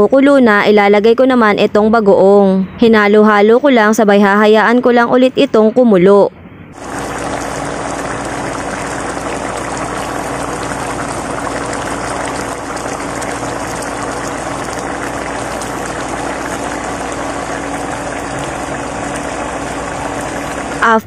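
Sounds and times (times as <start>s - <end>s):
low steady hum: 0.0s - 21.0s
sauce bubbling in a pan: 6.8s - 20.9s.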